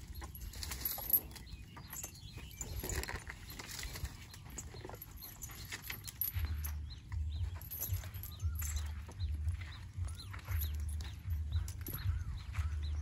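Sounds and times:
elephant low rumbles: 0.0s - 13.0s
elephant footfalls: 2.0s - 13.0s.

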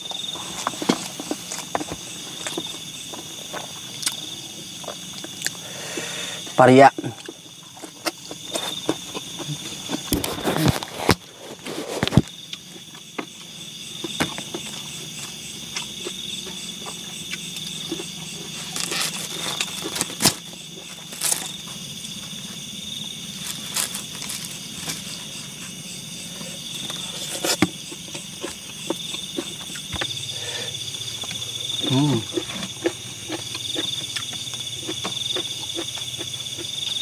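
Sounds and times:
insects chirring: 0.0s - 37.0s
clicks and crackles of eating: 0.2s - 5.6s, 7.0s - 21.7s, 23.4s - 25.2s, 31.2s - 37.0s.

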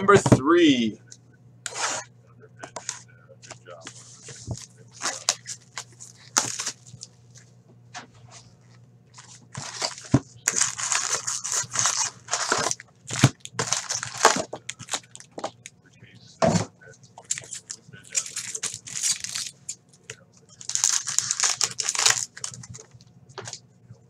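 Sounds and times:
card packs rustling: 3.9s - 7.1s, 9.1s - 15.6s, 17.2s - 19.7s, 20.5s - 23.6s
plastic shrink wrap crinkling: 4.2s - 7.4s, 9.1s - 15.4s, 17.2s - 19.8s, 20.5s - 23.6s.

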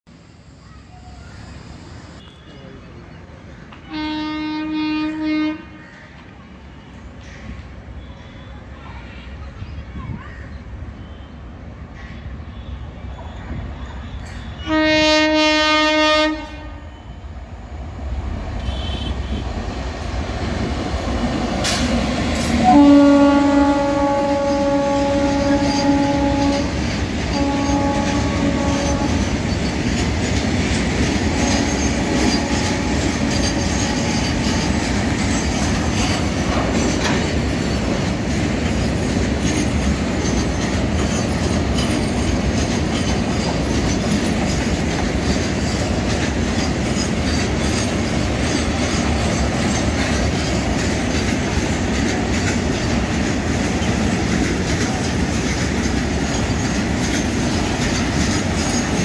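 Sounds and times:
steel wheels rolling on rail: 13.0s - 59.0s
wheels clacking over rail joints: 18.8s - 59.0s.

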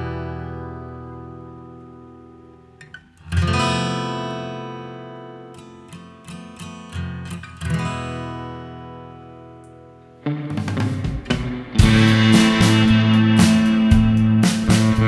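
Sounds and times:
acoustic guitar strumming and plucking: 0.0s - 15.0s.

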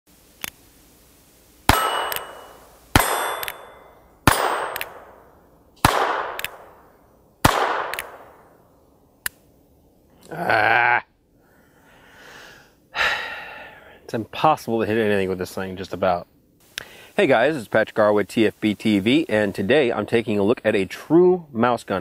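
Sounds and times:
sharp revolver click: 1.7s - 3.7s, 4.3s - 5.2s, 5.9s - 6.7s, 7.5s - 8.3s
revolver shots echoing: 1.7s - 6.8s, 7.4s - 8.5s.

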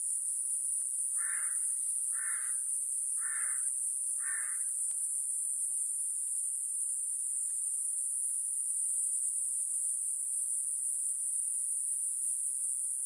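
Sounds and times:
cicadas buzzing: 0.0s - 13.0s
crow cawing: 1.2s - 2.6s, 3.2s - 4.7s.

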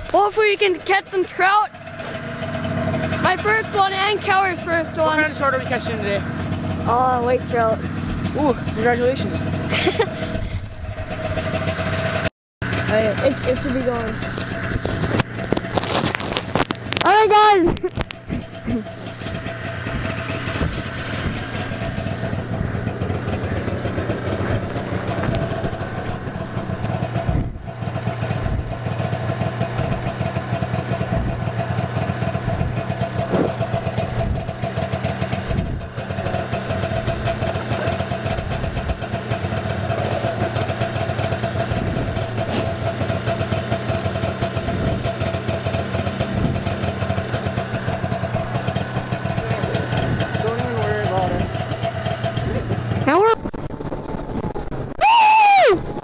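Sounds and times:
ice auger engine idling: 0.0s - 54.0s.

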